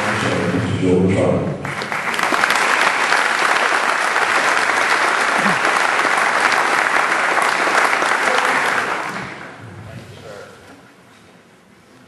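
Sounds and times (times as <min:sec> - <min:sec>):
audience applauding: 0:00.0 - 0:00.6, 0:01.6 - 0:09.6.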